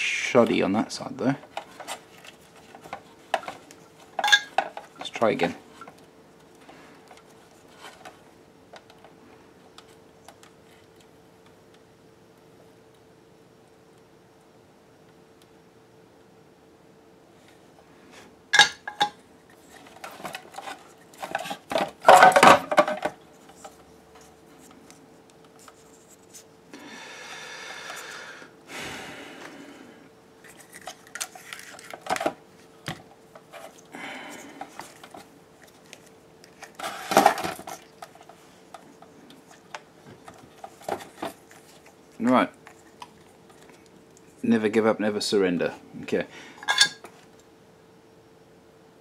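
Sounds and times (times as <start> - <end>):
faint steady hum: 0.0 - 49.0
plastic and metal parts clattering: 1.2 - 6.0, 18.6 - 23.8, 30.4 - 33.8, 34.6 - 38.8, 39.6 - 42.4.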